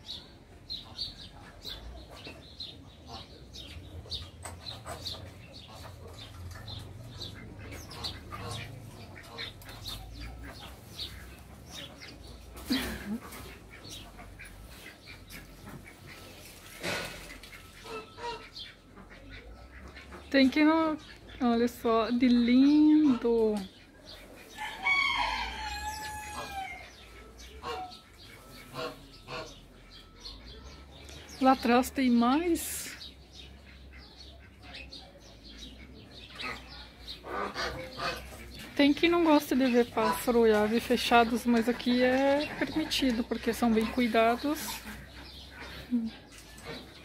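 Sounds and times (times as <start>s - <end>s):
birds chirping: 0.0s - 47.0s
chickens clucking: 0.0s - 47.0s
rooster crowing: 24.6s - 26.8s.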